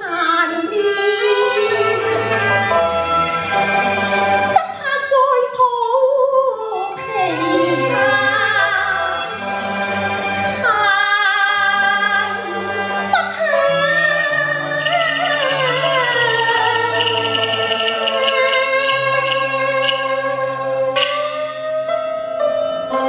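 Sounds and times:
woman singing opera: 0.0 - 2.8, 4.5 - 9.5, 10.5 - 21.0
instrumental accompaniment low notes: 6.9 - 23.0.

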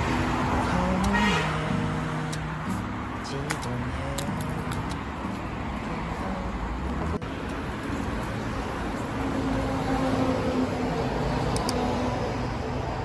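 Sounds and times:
road vehicles passing: 0.0 - 13.0.

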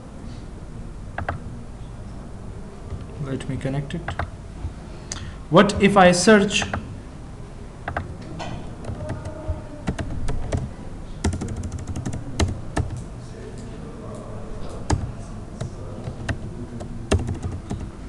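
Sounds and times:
computer keyboard typing: 1.2 - 1.4, 4.0 - 4.3, 6.6 - 6.9, 7.8 - 8.1, 8.8 - 13.1, 14.8 - 18.0.

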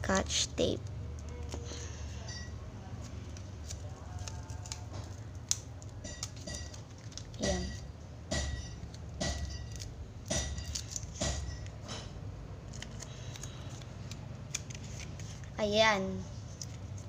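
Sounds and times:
knocks and crackles of tape: 3.3 - 12.1.

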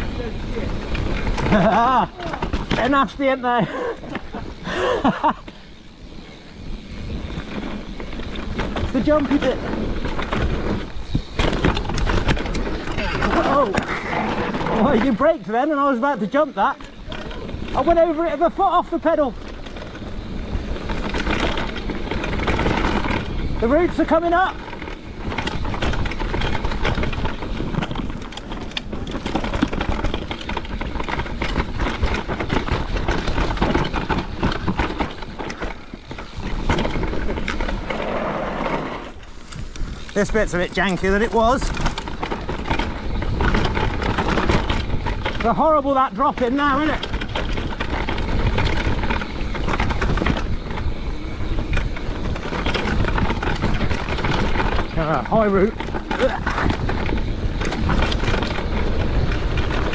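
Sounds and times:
bike knocking and rattling: 0.0 - 59.9
bike tyres rumbling on dirt: 0.0 - 59.9
wind rumble on microphone: 19.3 - 59.9.

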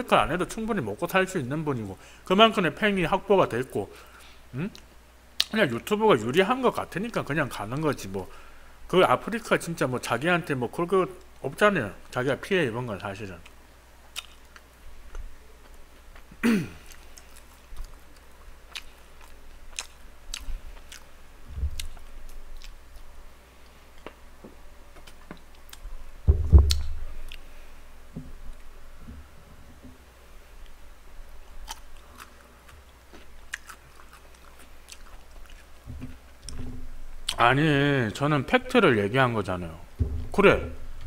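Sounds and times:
chewing and biting fried chicken: 14.1 - 14.7, 15.6 - 21.1, 21.7 - 23.1, 31.6 - 35.8
loud low thump: 21.5 - 21.8, 26.2 - 26.8, 40.0 - 40.9.

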